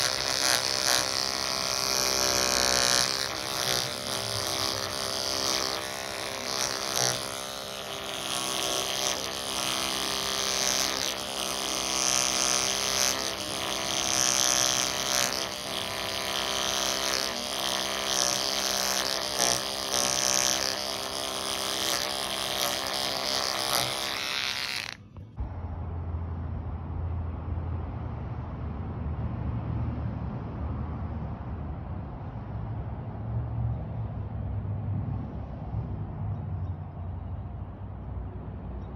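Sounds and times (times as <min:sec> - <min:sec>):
electric clippers buzzing: 0:00.0 - 0:25.4
low dull steady hum: 0:24.9 - 0:29.7.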